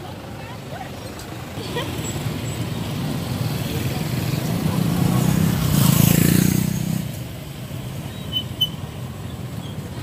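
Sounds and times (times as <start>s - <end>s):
motorbike engine passing: 1.6s - 7.2s.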